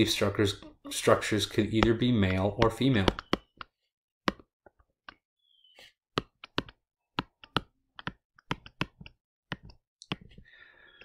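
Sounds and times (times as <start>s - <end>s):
pen clicking on a tablet: 1.5s - 5.2s, 6.1s - 10.4s.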